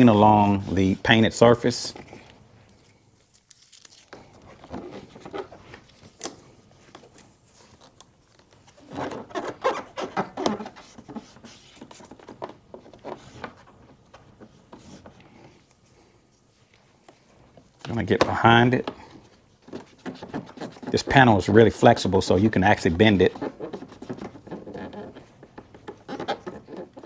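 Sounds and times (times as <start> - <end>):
rubbing and rustling: 0.0 - 27.0
scraping on plastic: 18.2 - 22.0, 22.8 - 27.0.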